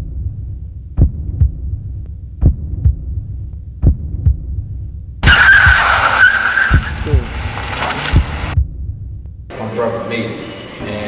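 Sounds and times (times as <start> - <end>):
heartbeat double thumps: 0.0 - 9.5
car speeding off: 5.2 - 8.6
tyres squealing: 5.2 - 8.6.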